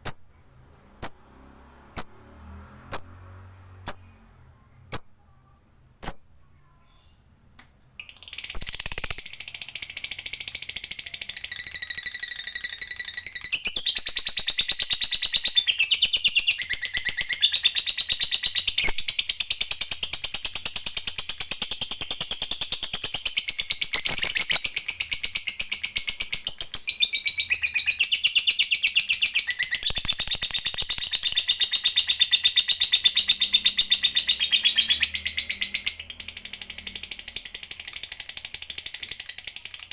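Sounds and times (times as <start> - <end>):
lovebird chirps: 1.0 - 1.3, 2.9 - 4.3, 4.9 - 7.3, 8.0 - 39.9
lovebird chattering trill: 21.3 - 39.9.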